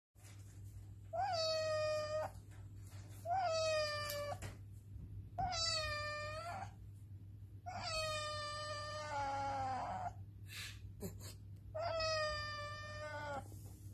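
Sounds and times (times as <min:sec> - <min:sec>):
cat meowing: 0:01.1 - 0:02.4, 0:03.2 - 0:04.5, 0:05.4 - 0:06.8, 0:07.7 - 0:10.2, 0:11.8 - 0:13.5.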